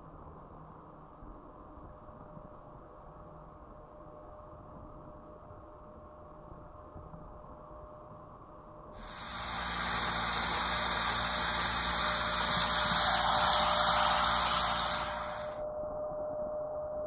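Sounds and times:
model train running on track: 0:09.0 - 0:15.6.

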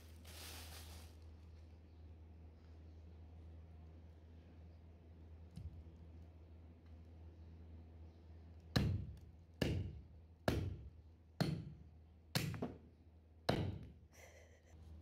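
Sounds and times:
cleaver chopping on wooden block: 0:08.7 - 0:12.8, 0:13.5 - 0:13.9.

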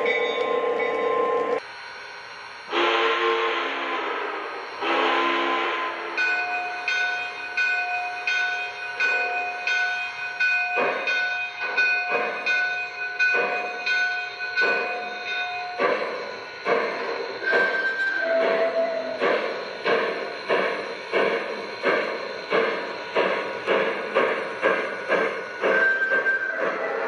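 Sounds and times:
steam locomotive chuffing: 0:00.0 - 0:27.0
steam whistle blasts: 0:02.7 - 0:06.3.

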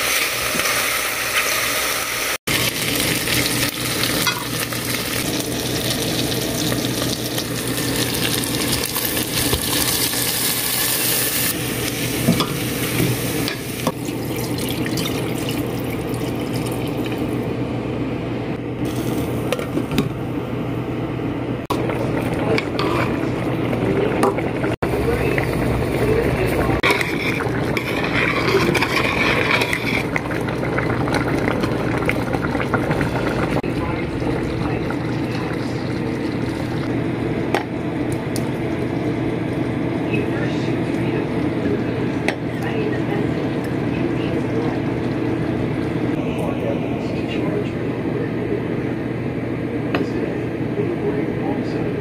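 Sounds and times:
low steady hum: 0:11.5 - 0:52.0
water pouring into pot: 0:13.7 - 0:17.4, 0:21.7 - 0:36.9.

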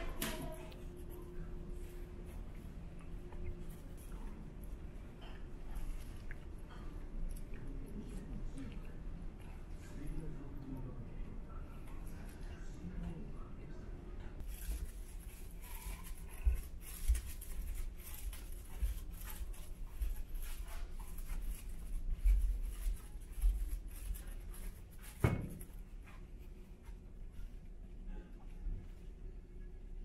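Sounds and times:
footsteps: 0:14.4 - 0:27.6.

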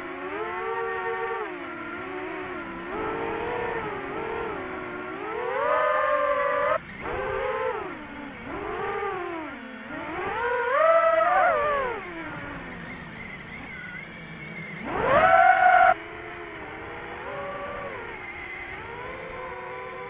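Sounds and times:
drone propellers whining: 0:00.0 - 0:20.0.

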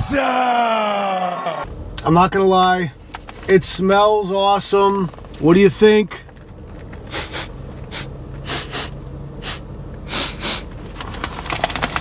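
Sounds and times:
person sniffing: 0:07.1 - 0:10.7.

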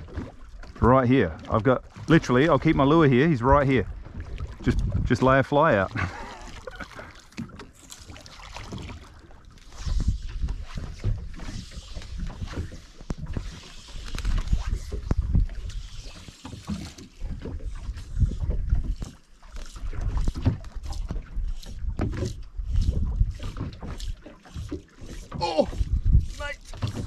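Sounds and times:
water lapping against boat hull: 0:00.0 - 0:27.0
wind gusting on microphone: 0:03.4 - 0:06.1, 0:21.8 - 0:23.7, 0:25.6 - 0:27.0.

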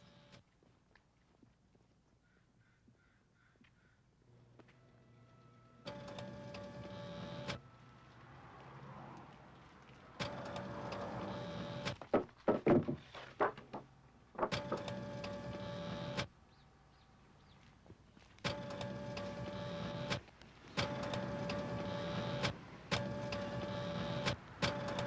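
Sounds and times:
photocopier running with whine: 0:00.0 - 0:00.4, 0:04.8 - 0:08.1, 0:10.2 - 0:12.0, 0:14.6 - 0:16.3, 0:18.5 - 0:20.2, 0:20.8 - 0:25.0
paper cutter chopping: 0:14.4 - 0:16.1.

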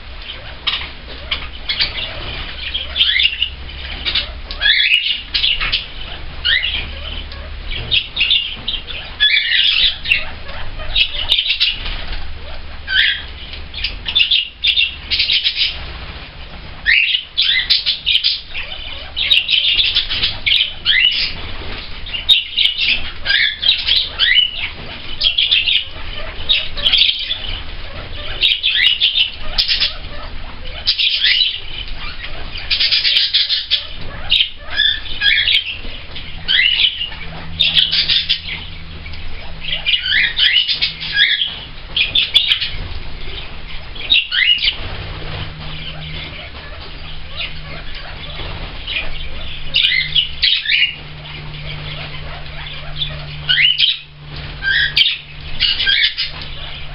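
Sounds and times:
parrots chirping and whistling: 0:00.0 - 0:56.9.

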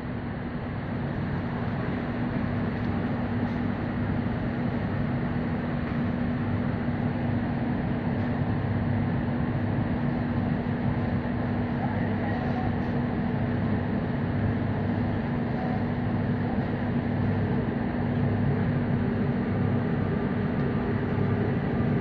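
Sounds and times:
metro train rumbling in tunnel: 0:00.0 - 0:22.0.

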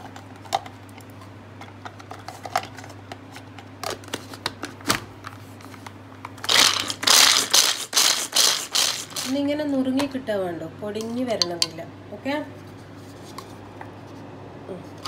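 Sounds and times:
pull-cord chopper crushing nuts: 0:06.4 - 0:09.4.

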